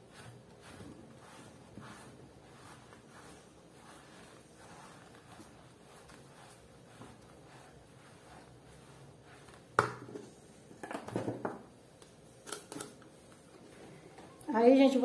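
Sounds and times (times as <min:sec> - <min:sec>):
spoon stirring dough in bowl: 0:00.0 - 0:10.8.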